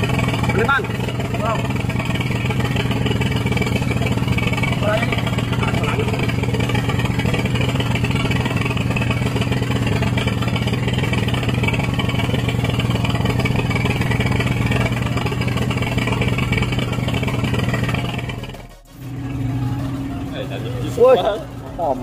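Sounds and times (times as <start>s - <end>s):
boat engine humming: 0.0s - 22.0s.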